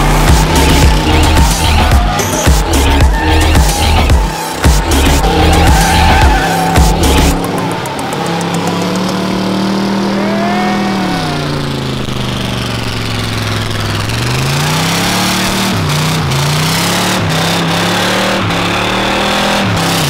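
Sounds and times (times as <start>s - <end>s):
car engine revving high: 0.0s - 20.0s.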